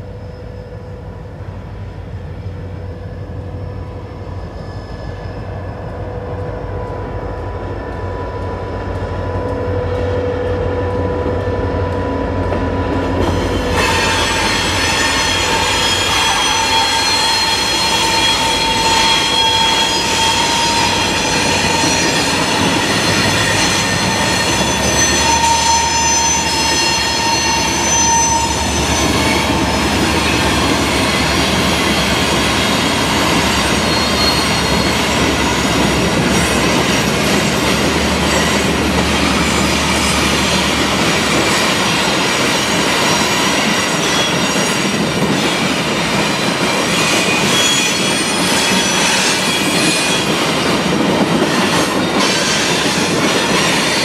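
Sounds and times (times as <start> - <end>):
train engines and rolling wheels: 0.0 - 54.0
thin high ringing tones: 13.3 - 32.1.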